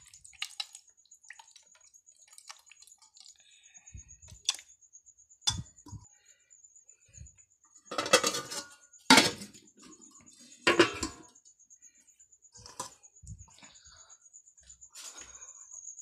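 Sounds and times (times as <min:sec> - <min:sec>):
steel dishes clattering: 0:07.9 - 0:11.4.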